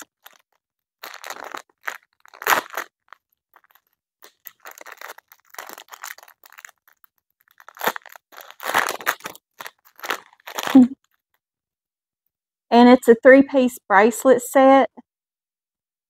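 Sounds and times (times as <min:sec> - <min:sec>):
plastic bag crinkling: 0:00.0 - 0:11.2.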